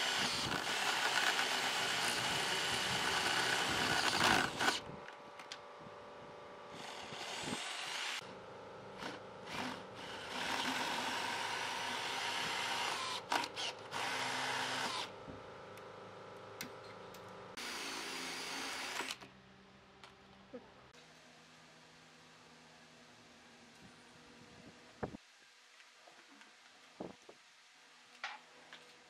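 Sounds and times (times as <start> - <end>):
cordless drill grinding wood: 0.0 - 4.9, 6.7 - 8.2, 9.0 - 15.1, 17.6 - 19.2.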